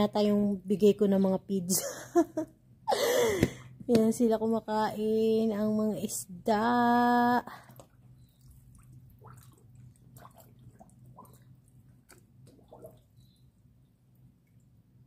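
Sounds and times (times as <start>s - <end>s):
steady low hum: 0.0s - 15.0s
fish sucking food at water surface: 7.6s - 13.4s.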